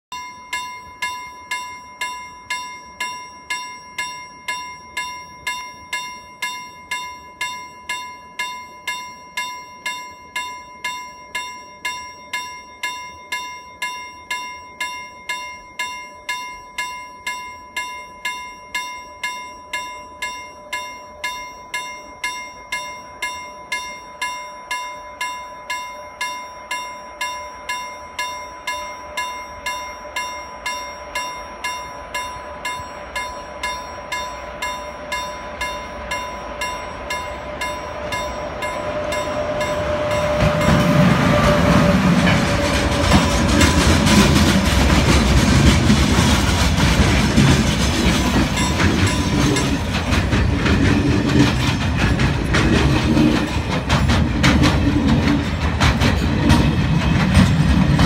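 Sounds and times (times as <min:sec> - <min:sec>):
level crossing bell ringing: 0:00.1 - 0:46.8, 0:47.4 - 0:54.3
freight train rumble: 0:26.7 - 0:58.0.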